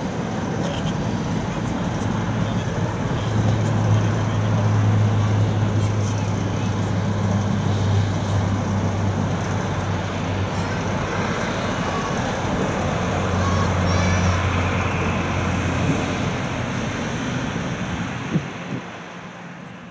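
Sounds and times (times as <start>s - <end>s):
jet engines roaring: 0.0s - 19.9s.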